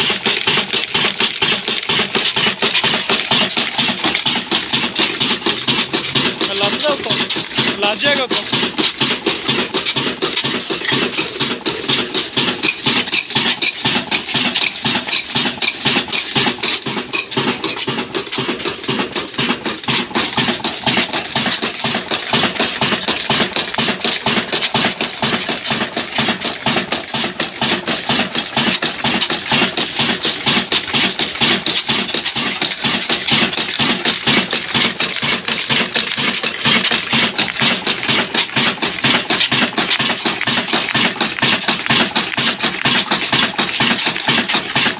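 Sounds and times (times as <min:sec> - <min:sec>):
diesel engine knocking: 0:00.0 - 0:44.9.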